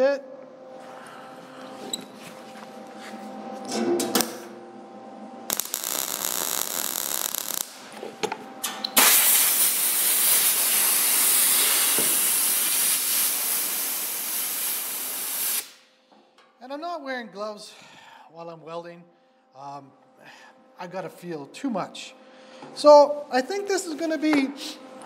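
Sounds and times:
welder arc crackling and hissing: 5.4 - 8.1, 8.9 - 15.9.

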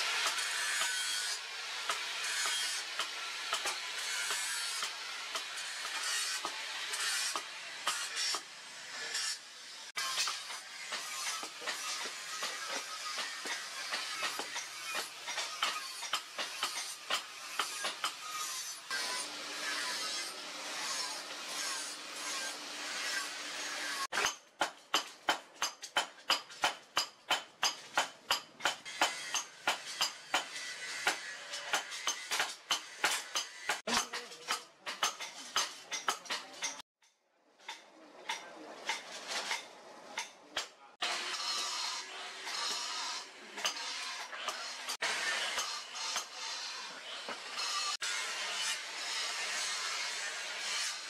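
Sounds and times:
hammer on hot steel: 0.0 - 8.5, 10.0 - 18.3, 24.2 - 36.8.

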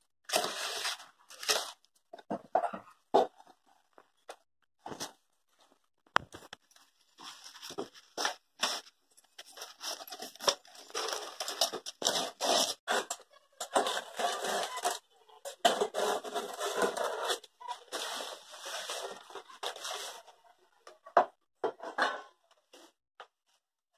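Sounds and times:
banana leaves rustling and tearing: 0.3 - 1.8.

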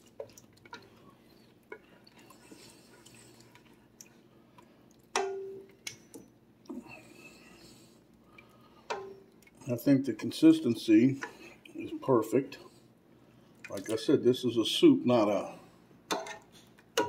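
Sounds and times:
spoon stirring thick soup: 0.0 - 12.9.

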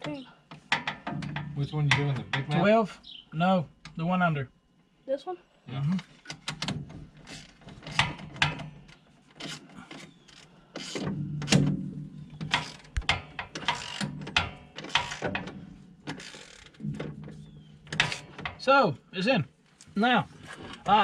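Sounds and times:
low steady hum: 0.0 - 21.0
ratchet clicking: 12.4 - 15.4.

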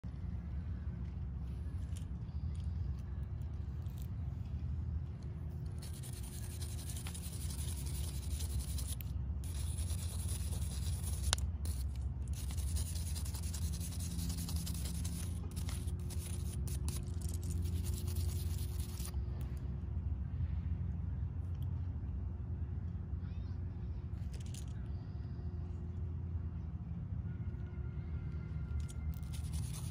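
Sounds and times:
brush scrubbing steel club face: 5.8 - 19.1, 29.2 - 29.9.

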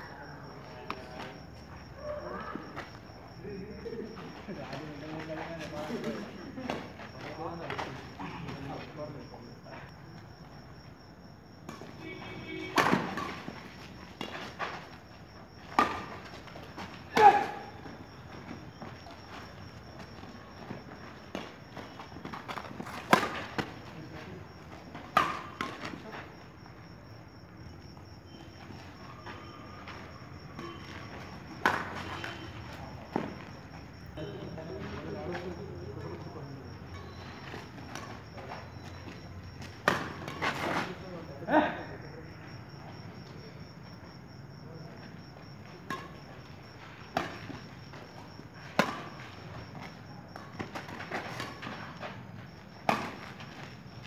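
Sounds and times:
crickets chirping: 0.0 - 54.0
racket hitting shuttlecock: 15.7 - 16.3, 25.0 - 25.9, 31.6 - 32.2, 39.8 - 40.8, 48.6 - 49.6, 52.8 - 53.4.

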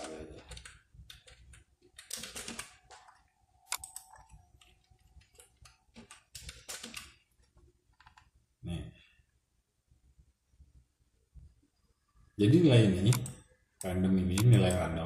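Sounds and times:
keyboard keys clicking: 0.0 - 7.2.

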